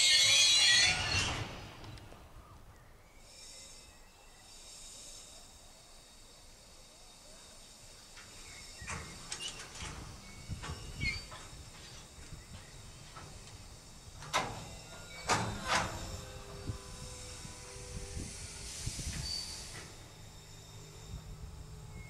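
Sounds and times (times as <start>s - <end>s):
thin metallic squeal: 0.0s - 1.5s, 8.3s - 22.0s
train wagons clanking: 8.0s - 17.4s.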